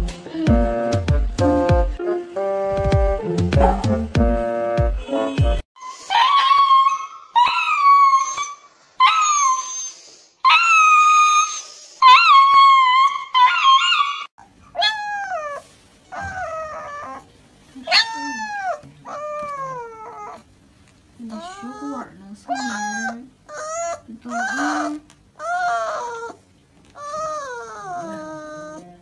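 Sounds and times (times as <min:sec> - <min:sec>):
puppy yelping: 0:05.8 - 0:20.5, 0:21.3 - 0:29.0.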